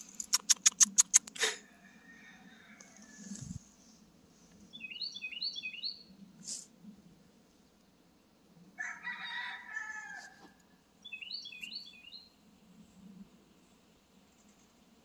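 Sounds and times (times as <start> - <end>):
rooster crowing: 1.6 - 3.4, 8.8 - 10.6
songbird chirps: 4.5 - 6.2, 10.8 - 12.4.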